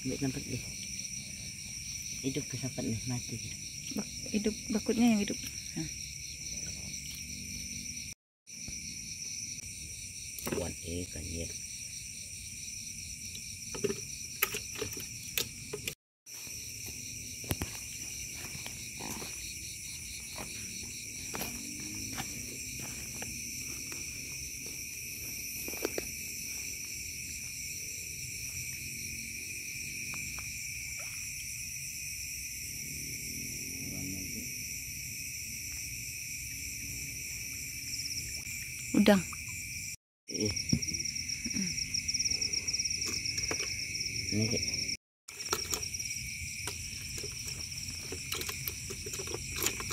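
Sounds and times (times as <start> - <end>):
crickets and insects trilling: 0.0 - 49.9
handling clicks and knocks: 13.7 - 16.0, 43.0 - 43.8, 45.3 - 49.9.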